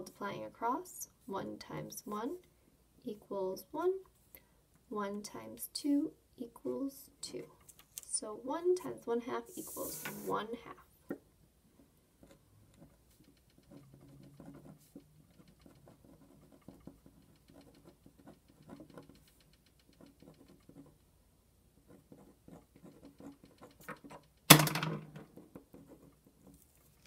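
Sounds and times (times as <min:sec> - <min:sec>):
marker scratching on paper: 0:09.4 - 0:10.6, 0:12.2 - 0:21.0, 0:21.8 - 0:24.2, 0:25.4 - 0:27.0.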